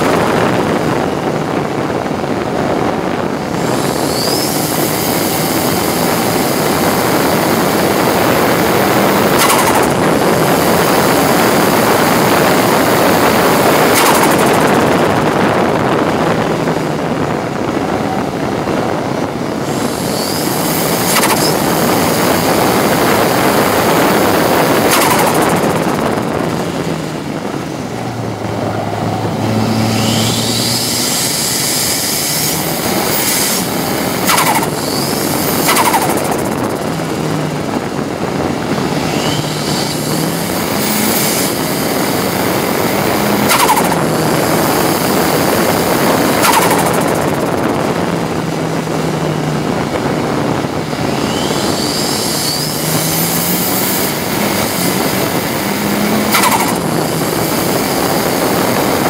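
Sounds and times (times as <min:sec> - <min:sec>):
race car engine running hard: 0:00.0 - 0:59.0
sharp cracks: 0:09.0 - 0:12.5, 0:13.2 - 0:15.1, 0:19.7 - 0:27.7, 0:29.1 - 0:37.2, 0:39.0 - 0:47.8, 0:51.1 - 0:59.0.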